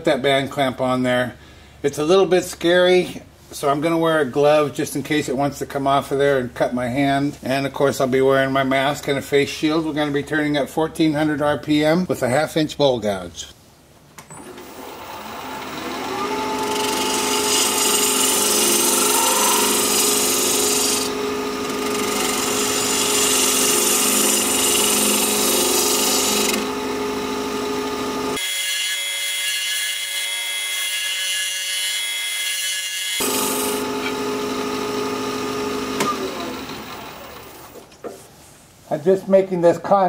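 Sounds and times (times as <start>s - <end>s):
lathe motor hum: 14.5s - 28.9s, 33.2s - 37.9s
lathe gouge cutting wood: 14.6s - 37.8s.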